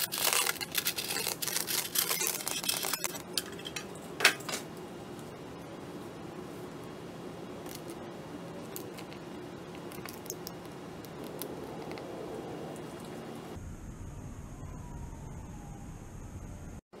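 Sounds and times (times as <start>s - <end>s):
steady background noise: 0.0s - 14.5s.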